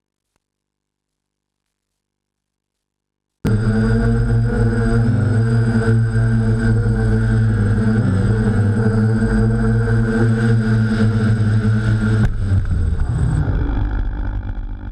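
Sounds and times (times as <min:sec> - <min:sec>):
drone propellers humming: 0:03.5 - 0:14.9.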